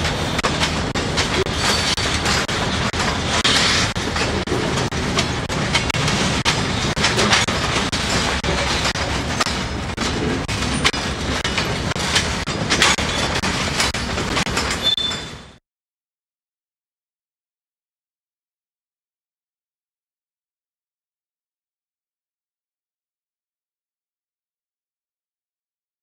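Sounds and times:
train wheels rumbling on rail: 0:00.0 - 0:15.6
wheels clicking over rail joints: 0:00.0 - 0:15.6.

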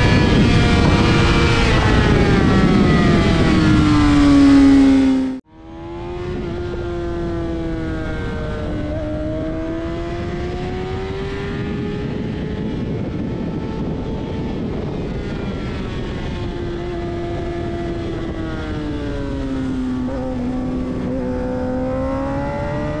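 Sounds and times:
motorcycle engine at high revs: 0:00.0 - 0:23.0
wind and road noise: 0:00.0 - 0:23.0.

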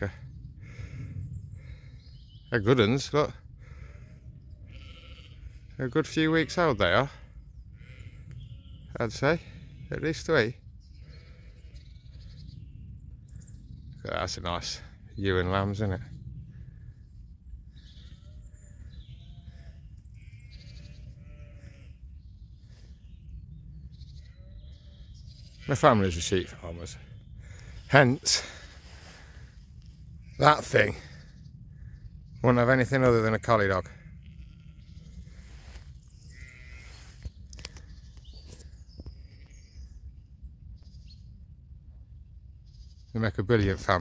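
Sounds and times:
steady low rumble: 0:00.0 - 0:06.4, 0:10.6 - 0:42.7
sheep bleating: 0:03.6 - 0:08.7, 0:11.0 - 0:12.4, 0:17.8 - 0:22.0, 0:33.9 - 0:37.1.

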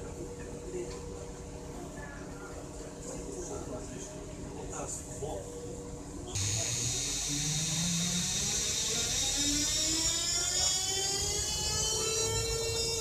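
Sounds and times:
electric traction drive whining: 0:06.4 - 0:13.0.

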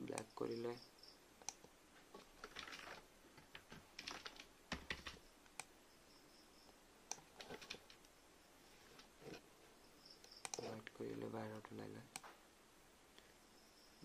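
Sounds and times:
mouse clicks: 0:01.4 - 0:01.7, 0:04.7 - 0:05.7, 0:10.2 - 0:11.0
keyboard keystrokes: 0:04.0 - 0:05.2.

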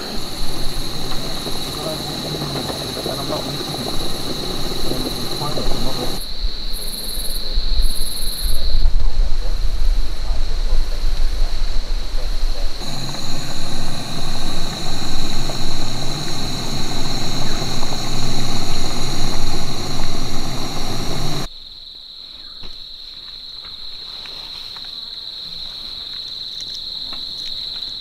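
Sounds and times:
gas stove roaring: 0:00.0 - 0:06.2, 0:12.7 - 0:21.5
insect chorus: 0:00.0 - 0:28.0.

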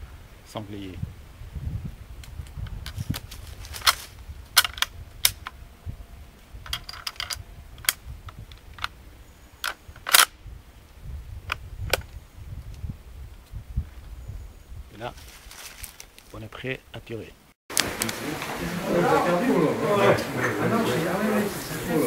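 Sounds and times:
rifle bolt metallic clicks: 0:09.6 - 0:10.4.

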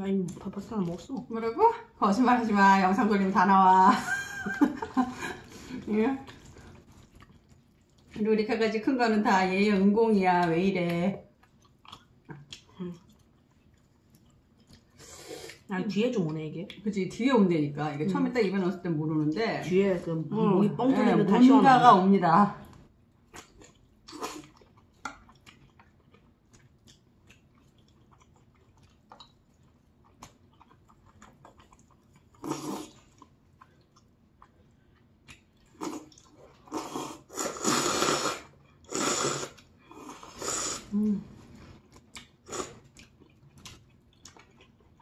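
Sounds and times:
quiet chewing: 0:04.5 - 0:08.3, 0:10.3 - 0:16.8, 0:22.6 - 0:45.0
loud noodle slurps: 0:32.4 - 0:33.0, 0:35.8 - 0:41.0, 0:42.4 - 0:42.9.

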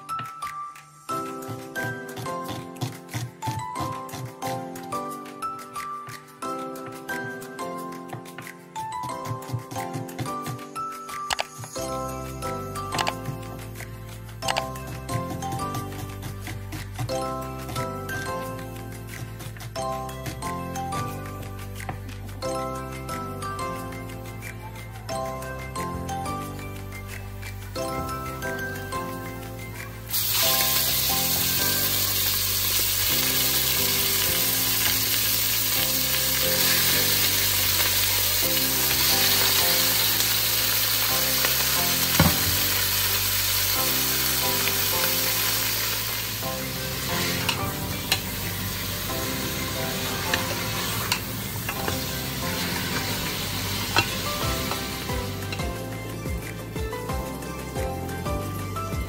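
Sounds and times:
meat sizzling in hot oil: 0:30.0 - 0:55.8.

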